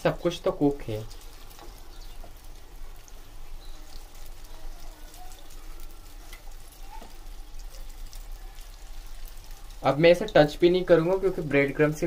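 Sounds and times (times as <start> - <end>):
food deep-frying in oil: 0.0 - 12.0.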